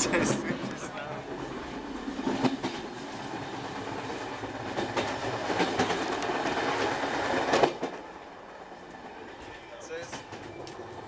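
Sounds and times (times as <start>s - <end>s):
train carriage rumble: 0.0s - 11.0s
wheels clicking over rail joints: 0.1s - 11.0s
knocks and clatter: 4.6s - 8.0s.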